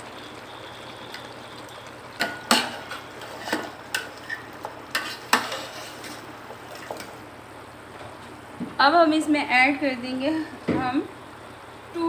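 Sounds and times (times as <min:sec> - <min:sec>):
meat sizzling in oil: 0:00.0 - 0:07.3
spoon scraping metal pot: 0:02.5 - 0:06.2.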